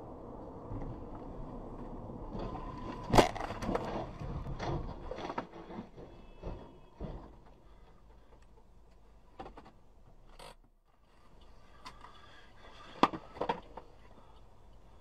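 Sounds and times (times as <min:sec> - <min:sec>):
road noise: 0:00.0 - 0:10.3, 0:11.0 - 0:15.0
car crashing: 0:02.3 - 0:07.8
bangs and clattering debris: 0:02.3 - 0:08.3.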